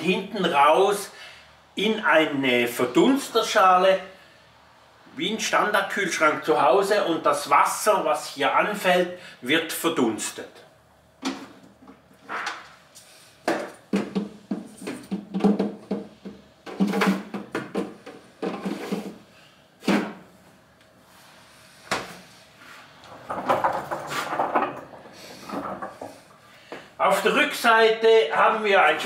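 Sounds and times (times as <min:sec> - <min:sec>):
minibar fridge knocking and rattling: 0:13.5 - 0:18.6, 0:23.1 - 0:26.2
bottles moved about: 0:23.0 - 0:26.4.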